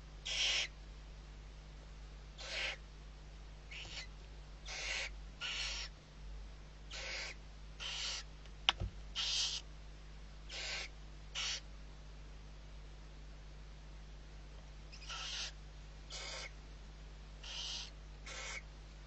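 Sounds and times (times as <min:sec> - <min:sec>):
owl chicks hissing: 0:00.2 - 0:00.8, 0:02.4 - 0:02.8, 0:03.7 - 0:06.0, 0:06.9 - 0:08.3, 0:09.1 - 0:09.7, 0:10.5 - 0:11.7, 0:14.9 - 0:16.6, 0:17.4 - 0:18.7.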